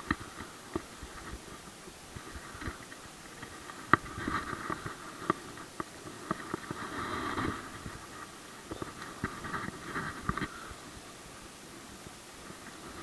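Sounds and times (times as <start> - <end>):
gear clicking and scraping: 0.0 - 10.6.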